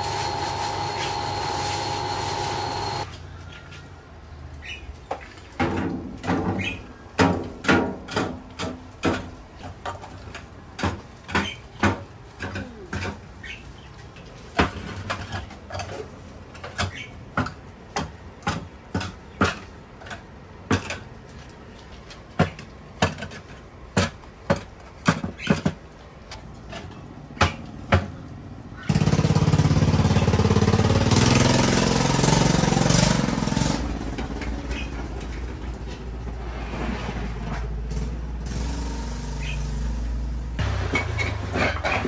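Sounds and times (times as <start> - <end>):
cookware and utensils clanking: 14.5 - 17.6, 40.6 - 42.0.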